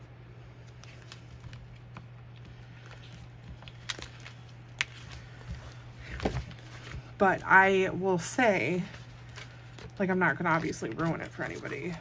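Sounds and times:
steady low hum: 0.0s - 12.0s
paper handling on desk: 0.6s - 7.2s.

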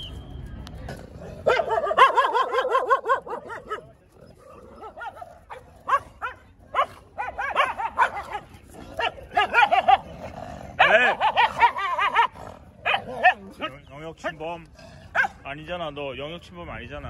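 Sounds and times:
dog yapping barks: 1.4s - 3.8s, 4.8s - 10.0s, 10.8s - 13.4s, 15.1s - 15.4s.

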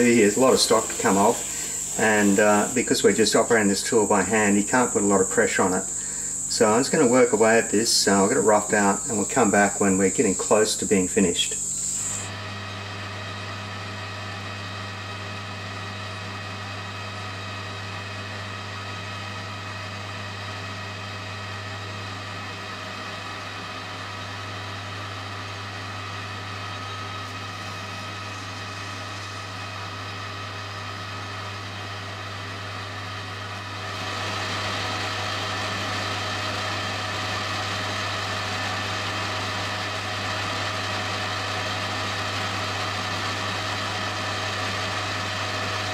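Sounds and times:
metal lathe running: 0.0s - 12.4s, 22.0s - 45.9s
motor hum: 0.0s - 20.1s, 21.1s - 45.9s.

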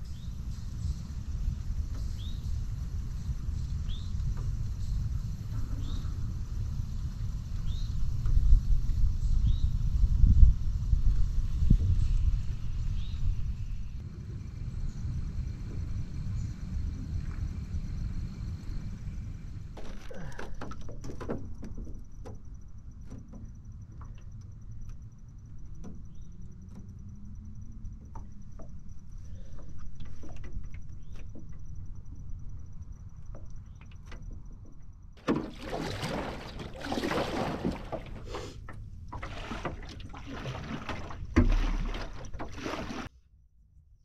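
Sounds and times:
small knocks: 19.8s - 25.0s, 25.7s - 27.0s, 27.9s - 32.2s
paddle strokes splashing: 35.2s - 43.1s.

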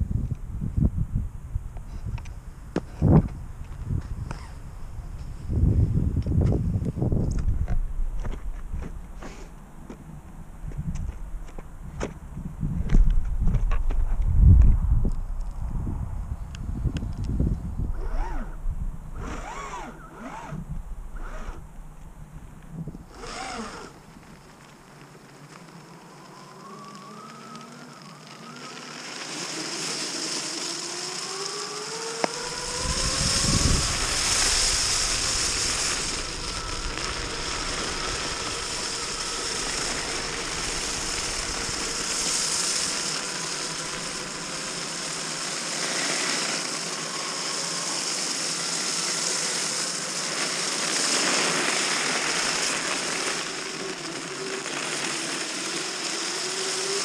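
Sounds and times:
low rumble: 0.0s - 19.3s, 20.5s - 23.2s, 32.5s - 44.7s
wind and wheels on snow: 0.0s - 57.0s
electric motors whining: 17.2s - 57.0s.

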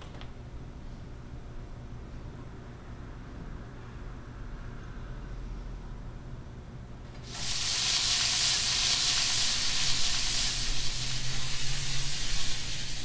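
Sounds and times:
butter sizzling in frying pan: 7.2s - 13.0s.

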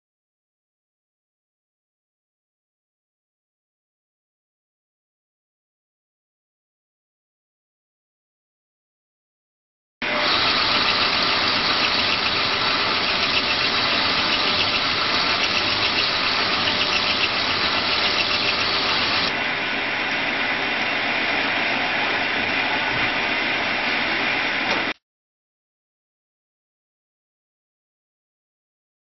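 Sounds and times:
lathe sanding whir: 10.0s - 19.4s.

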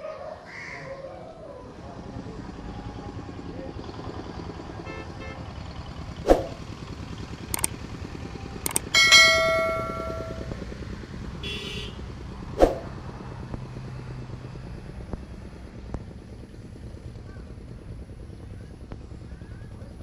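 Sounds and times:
sharp click: 8.7s - 9.1s
notification bell chime: 8.7s - 10.6s.

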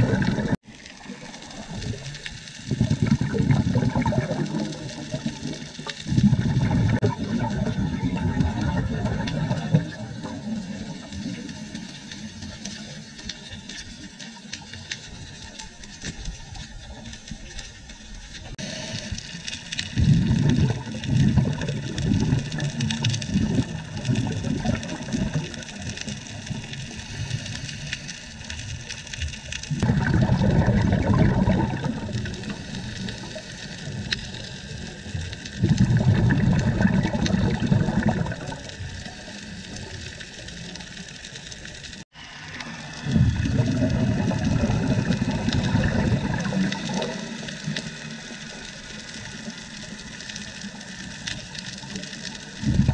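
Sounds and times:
exhaled bubbles rumbling: 0.0s - 12.9s, 15.1s - 52.9s
steady hiss: 9.4s - 20.0s, 25.3s - 29.8s, 31.8s - 35.6s.

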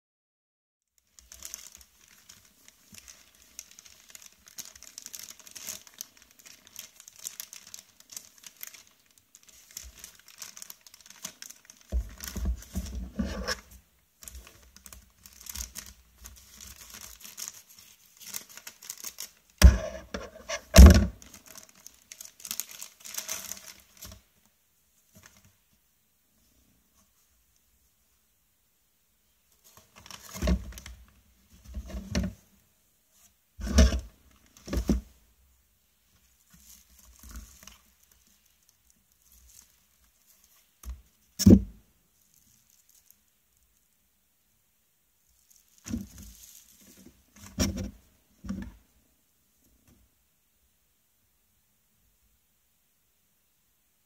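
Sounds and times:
plastic bag crinkling and tearing: 1.0s - 24.3s, 29.6s - 31.1s, 36.3s - 41.6s, 42.2s - 43.8s, 45.3s - 48.0s.

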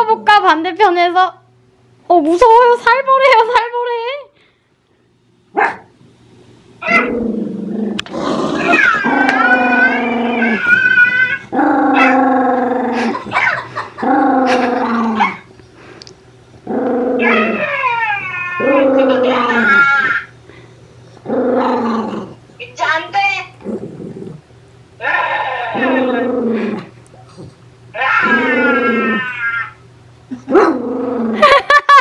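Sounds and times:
dog howling and grumbling: 6.8s - 15.5s, 16.6s - 20.3s, 21.2s - 22.4s, 27.9s - 29.8s.

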